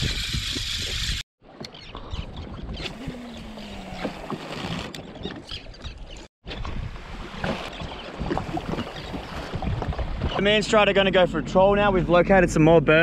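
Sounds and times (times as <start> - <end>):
water lapping against a hull: 1.4 - 11.1.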